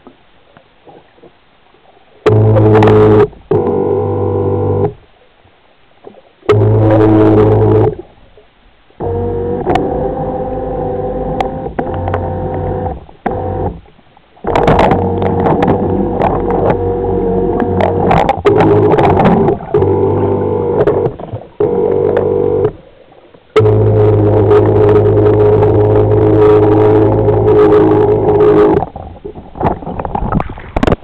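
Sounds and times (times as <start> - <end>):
small electric motors whining: 9.0 - 13.8, 19.8 - 22.7
sharp clicks: 9.6 - 10.1, 14.5 - 16.9.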